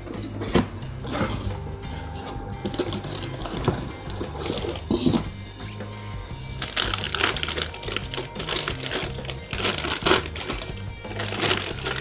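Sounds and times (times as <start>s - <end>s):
background music: 0.0s - 12.0s
plastic bag crinkling: 6.6s - 12.0s.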